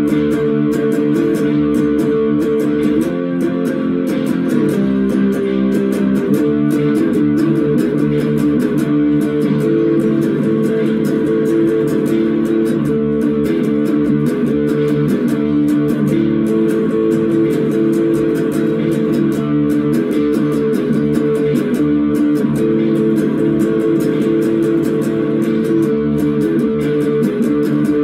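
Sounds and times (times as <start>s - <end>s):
electric guitar through an amp: 0.0s - 28.0s
programmed drum beat: 0.0s - 28.0s.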